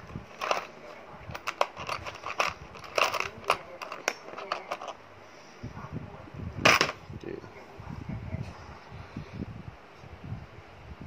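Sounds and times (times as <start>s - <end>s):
hands clicking on plastic and metal: 0.0s - 5.0s.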